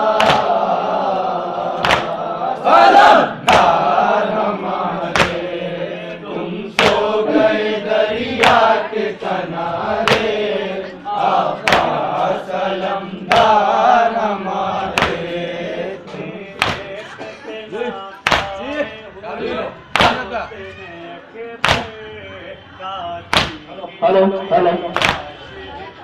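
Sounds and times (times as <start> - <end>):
crowd of men chanting: 0.0 - 26.0
hand slaps on chests: 0.2 - 0.6, 1.8 - 2.2, 3.4 - 3.8, 5.1 - 5.4, 6.8 - 7.0, 8.4 - 8.7, 10.0 - 10.4, 11.6 - 12.3, 13.3 - 13.6, 14.9 - 15.2, 16.6 - 16.9, 18.2 - 18.6, 19.9 - 20.2, 21.6 - 22.0, 23.3 - 23.6, 24.9 - 25.3.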